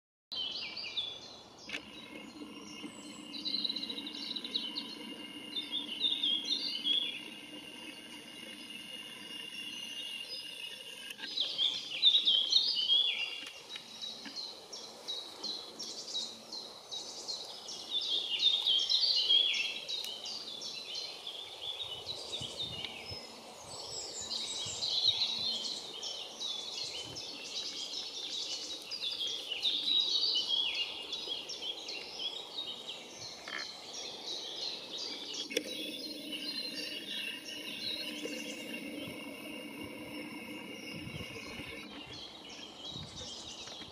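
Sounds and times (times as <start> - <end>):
songbird singing: 0.3 - 43.9
faint chatter of other birds: 8.4 - 43.9
steady rushing background: 35.6 - 42.4.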